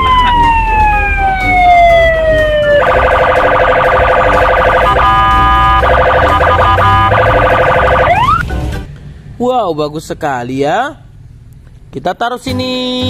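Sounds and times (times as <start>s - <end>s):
electronic police siren: 0.0s - 8.4s.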